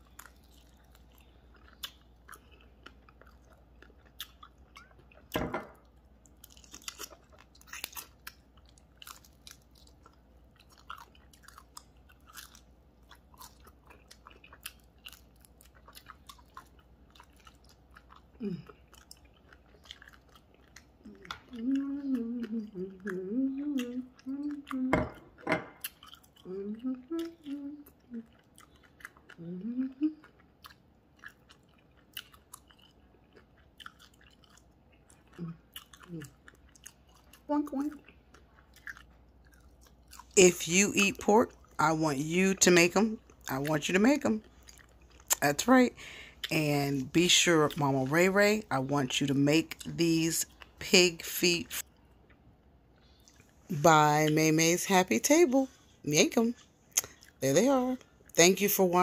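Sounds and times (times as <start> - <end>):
person chewing crunchy food: 0.0 - 40.4, 41.4 - 41.8, 43.2 - 46.6, 51.8 - 53.7, 56.6 - 57.4
person humming: 21.1 - 25.2, 26.4 - 28.3, 29.4 - 30.2
wet mouth clicks: 56.9 - 57.3.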